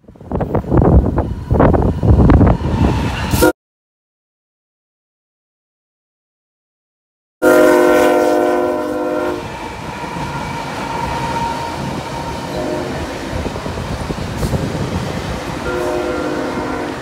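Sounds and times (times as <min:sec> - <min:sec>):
train rumbling past: 0:00.0 - 0:03.5, 0:07.4 - 0:17.0
locomotive air horn: 0:03.3 - 0:03.5, 0:07.4 - 0:13.2, 0:15.6 - 0:17.0.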